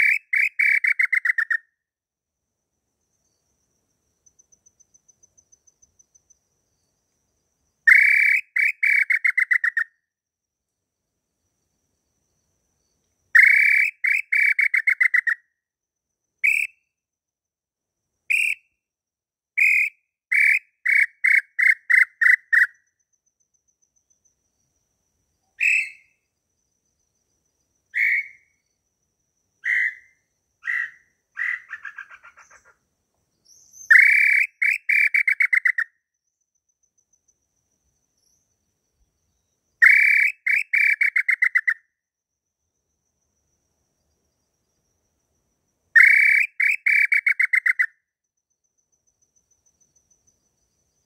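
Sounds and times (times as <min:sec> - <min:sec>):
bird whistled calls: 0:00.0 - 0:01.6, 0:07.9 - 0:09.8, 0:13.4 - 0:15.4, 0:16.4 - 0:16.7, 0:25.6 - 0:26.1, 0:28.0 - 0:28.5, 0:33.5 - 0:35.9, 0:39.8 - 0:41.8, 0:46.0 - 0:47.9
whistled lure call: 0:00.0 - 0:01.7, 0:07.9 - 0:10.0, 0:13.4 - 0:15.4, 0:16.4 - 0:16.8, 0:18.3 - 0:18.7, 0:19.6 - 0:22.8, 0:25.6 - 0:26.2, 0:28.0 - 0:28.6, 0:29.6 - 0:32.7, 0:33.6 - 0:35.9, 0:39.8 - 0:41.9, 0:46.0 - 0:48.0.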